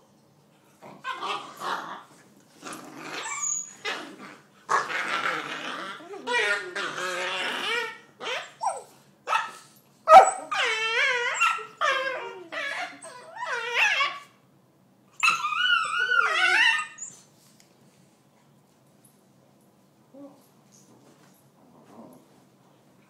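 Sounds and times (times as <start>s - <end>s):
puppy whining cries: 3.1s - 4.1s, 4.7s - 9.5s, 10.1s - 14.3s, 15.2s - 17.3s
puppies yipping and barking: 3.2s - 3.9s, 10.1s - 14.3s.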